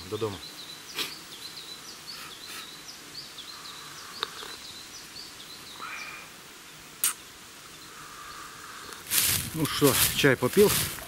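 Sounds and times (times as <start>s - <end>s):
small bird chirping: 0.0s - 9.1s
sharp click: 7.0s - 7.2s.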